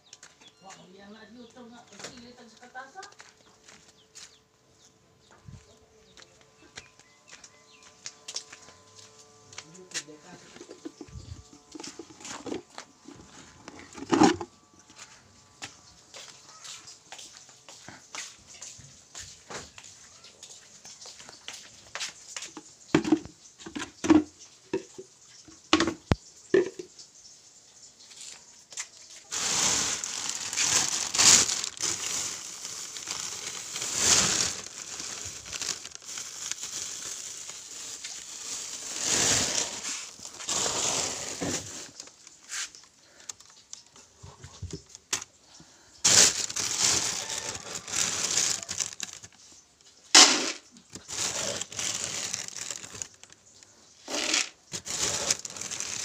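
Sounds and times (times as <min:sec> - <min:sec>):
plastic bag crinkling: 0:10.0 - 0:15.4, 0:29.2 - 0:45.3, 0:46.0 - 0:49.5, 0:50.2 - 0:56.0.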